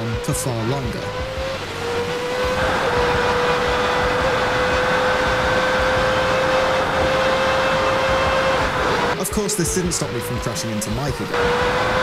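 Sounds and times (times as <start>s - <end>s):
electric fan whining: 1.2s - 9.2s.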